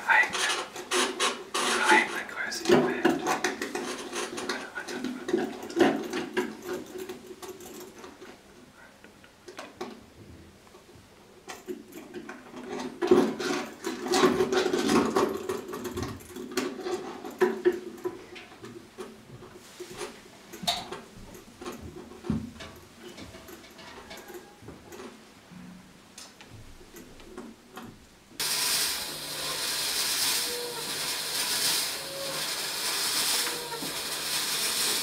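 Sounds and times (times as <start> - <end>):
scraping rubbing and clicking objects: 0.1 - 8.4, 12.1 - 20.4.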